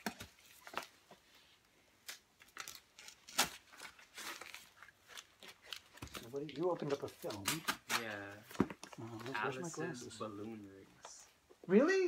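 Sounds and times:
envelopes rustling and tearing: 0:02.0 - 0:09.6.

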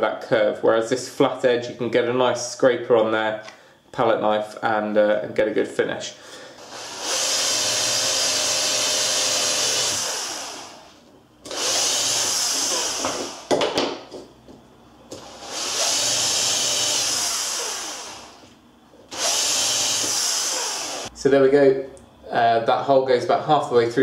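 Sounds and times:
electric drill boring into wood: 0:06.6 - 0:13.5, 0:15.2 - 0:18.5, 0:19.1 - 0:21.1.

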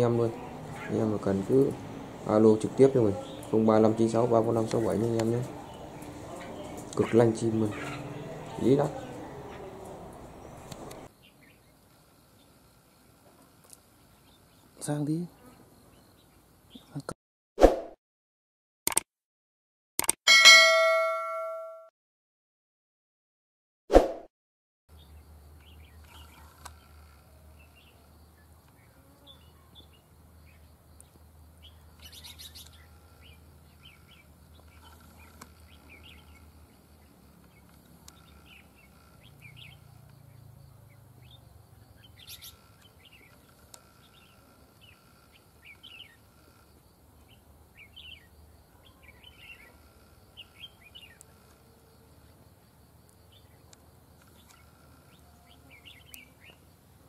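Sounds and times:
brief ding: 0:20.3 - 0:21.9
birds chirping and whistling: 0:42.0 - 0:43.4.

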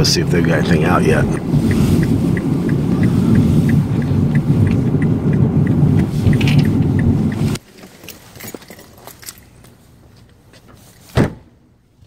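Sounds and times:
turn signal ticking: 0:00.0 - 0:07.6
car road and engine rumble: 0:00.0 - 0:12.0.

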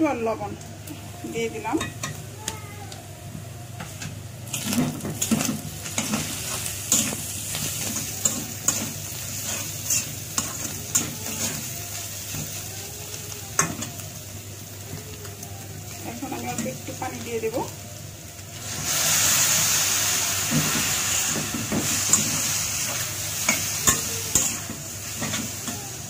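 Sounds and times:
food sizzling in oil: 0:03.6 - 0:26.0
metal spatula scraping wok: 0:04.5 - 0:11.7.

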